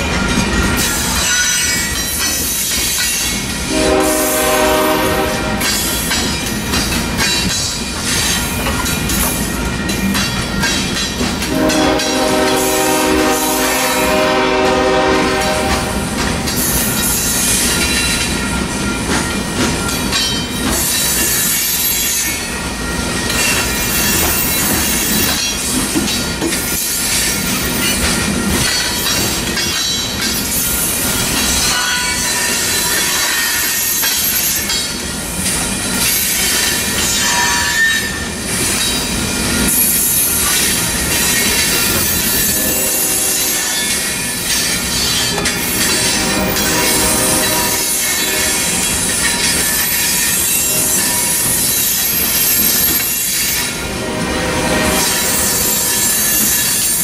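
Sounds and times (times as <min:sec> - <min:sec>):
train wheels rumbling over rail joints: 0:00.0 - 0:57.0
train horn: 0:03.6 - 0:05.8, 0:11.4 - 0:16.2, 0:42.4 - 0:44.1, 0:45.8 - 0:48.9, 0:50.5 - 0:53.1, 0:53.7 - 0:57.0.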